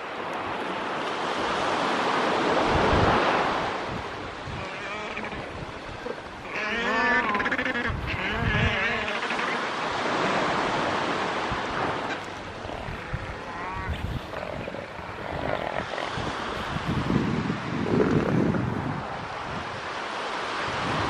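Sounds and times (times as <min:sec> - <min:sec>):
surf: 0:00.0 - 0:21.0
wind on microphone: 0:01.2 - 0:09.2, 0:09.8 - 0:21.0
elephant seal calls: 0:04.4 - 0:10.2, 0:11.9 - 0:16.6
pulsing low seal call: 0:04.5 - 0:09.9.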